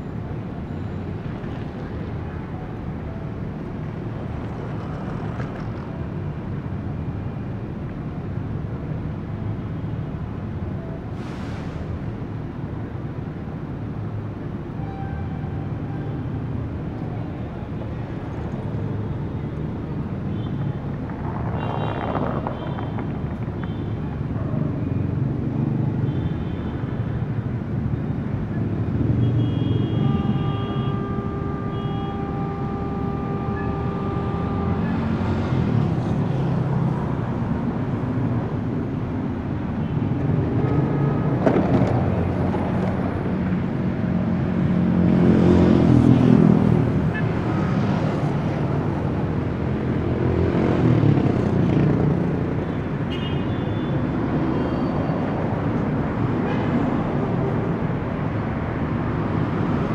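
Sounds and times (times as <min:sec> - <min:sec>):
city street traffic rumble: 0:00.0 - 0:59.9
louder vehicles passing: 0:00.0 - 0:59.9
long steady high tone: 0:30.0 - 0:36.4.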